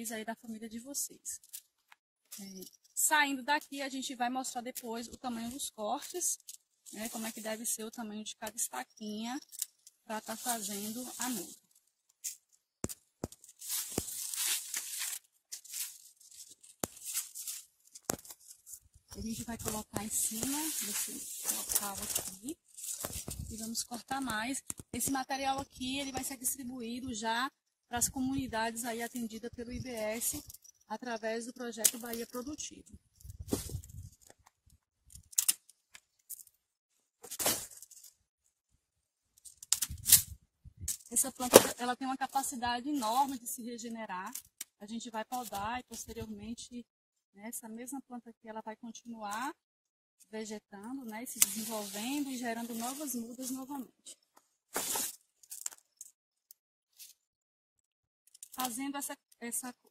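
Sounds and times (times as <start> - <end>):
leaves rustling and crackling: 5.2 - 8.0, 9.5 - 12.5, 13.2 - 25.1, 51.2 - 53.8
hand shears cutting stems: 12.2 - 25.0, 51.3 - 53.6.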